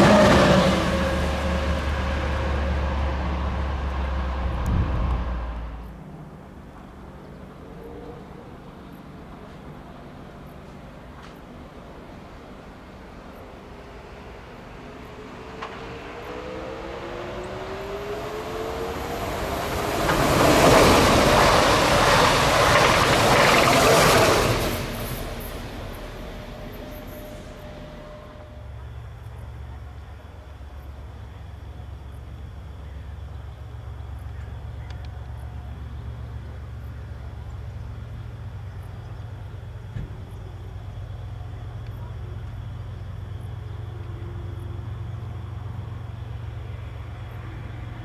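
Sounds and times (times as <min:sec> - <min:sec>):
train wheels rolling on rails: 0:00.0 - 0:31.2
train whine: 0:00.0 - 0:48.0.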